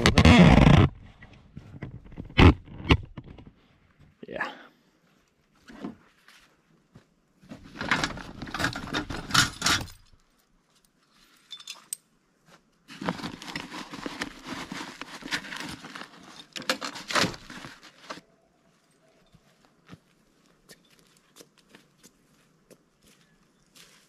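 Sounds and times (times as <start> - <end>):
rustling and crackling: 12.5 - 24.0.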